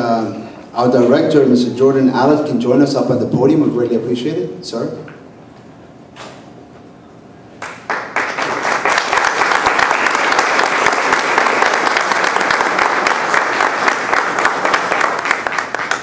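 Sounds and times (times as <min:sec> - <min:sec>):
audience applauding: 0:07.6 - 0:16.0.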